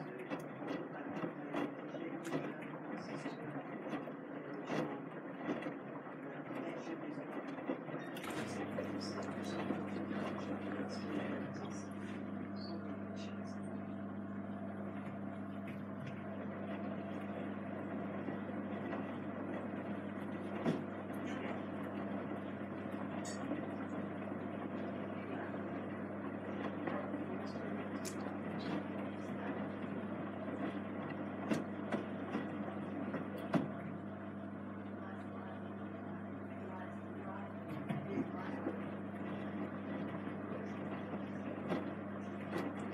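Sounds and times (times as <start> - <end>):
washing machine drum tumbling: 0.0 - 42.9
washing machine motor hum: 0.0 - 42.9.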